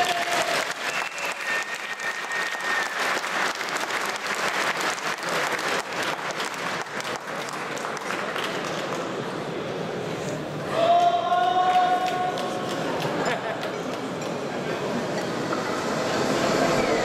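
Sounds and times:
crowd applauding: 0.0s - 9.3s, 11.4s - 14.4s.

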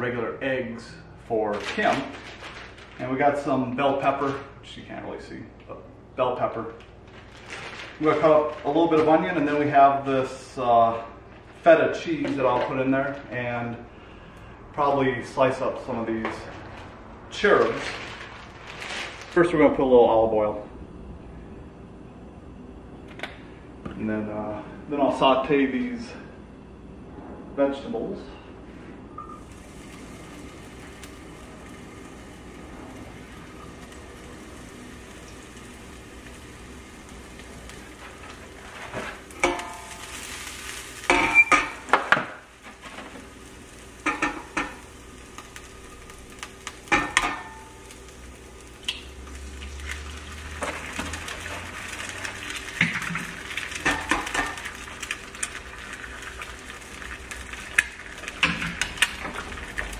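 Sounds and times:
vegetables sizzling in a frying pan: 29.4s - 59.9s.

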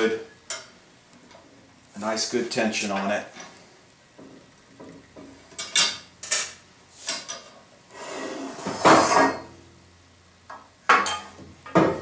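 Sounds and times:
metal scraping clank: 5.6s - 9.6s.

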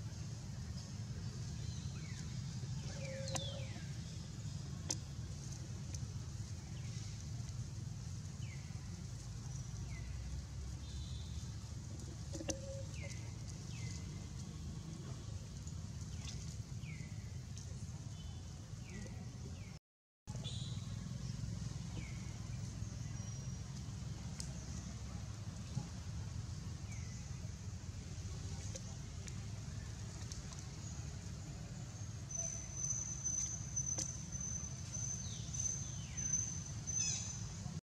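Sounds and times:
steady low rumble: 20.9s - 33.8s.

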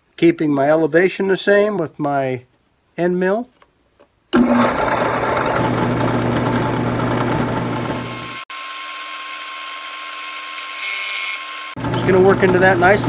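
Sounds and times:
drill press motor hum: 4.4s - 13.0s.

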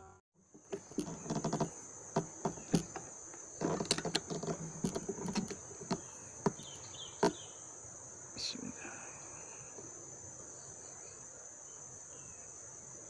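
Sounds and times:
insects droning: 0.0s - 13.0s
sharp clicks and knocks: 0.5s - 7.4s.

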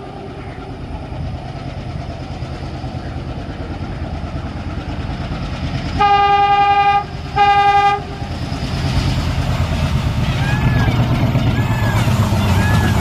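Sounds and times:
locomotive engine rumble: 0.0s - 13.0s
locomotive air horn blasts: 6.0s - 8.2s.

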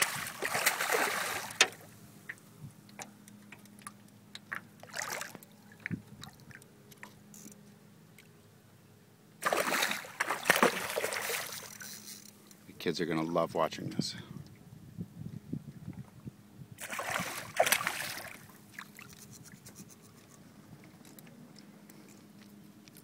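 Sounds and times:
fish splashing at surface: 0.0s - 1.7s, 9.4s - 11.8s, 16.8s - 19.3s.

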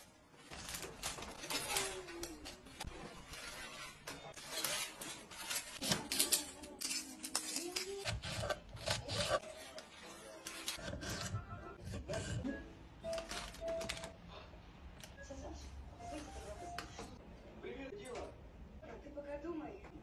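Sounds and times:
parchment paper rustling: 0.0s - 12.4s.

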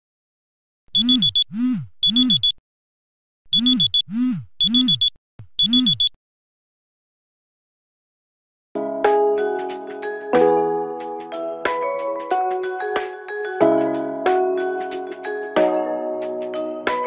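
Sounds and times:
phone alarm beeps: 0.9s - 2.6s, 3.5s - 6.2s.

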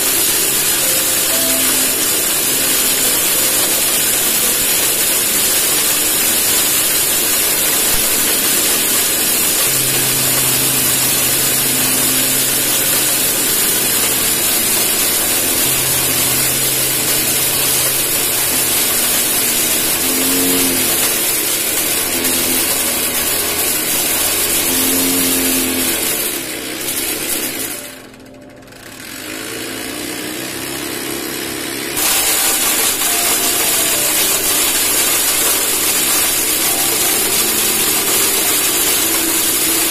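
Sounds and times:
electric corn cracker grinding: 0.0s - 39.9s.

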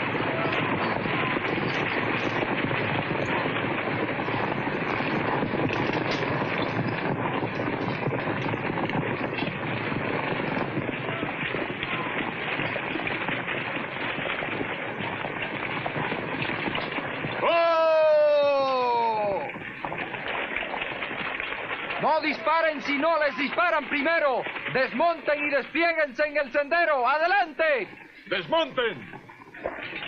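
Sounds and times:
horse hooves galloping on dirt: 0.0s - 30.0s.

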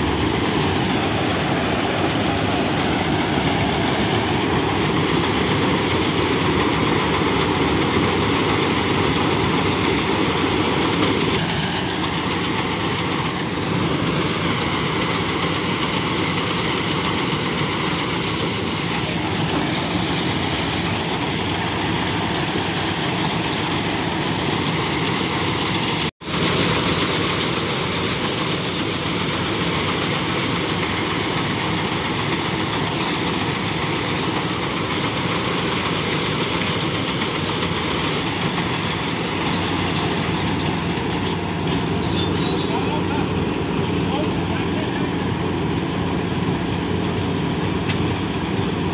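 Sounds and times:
combine harvester diesel engine running: 0.0s - 48.9s.

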